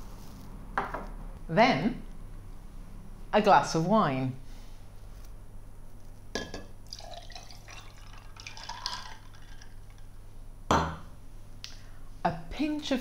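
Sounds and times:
wine pouring over ice: 0:06.8 - 0:10.1.

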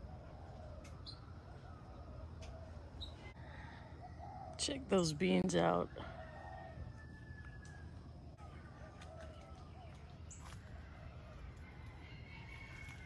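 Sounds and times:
distant bird calls: 0:00.0 - 0:04.8.

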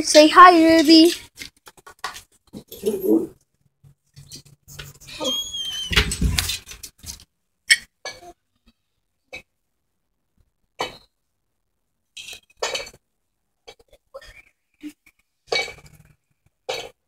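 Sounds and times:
small pet squeaky call: 0:05.0 - 0:06.2.

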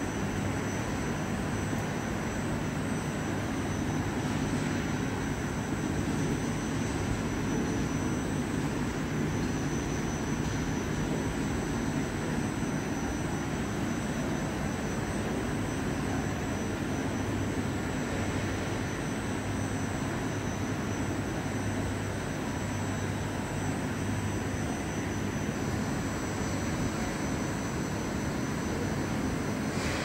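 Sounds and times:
gas burner roaring: 0:28.7 - 0:30.0.

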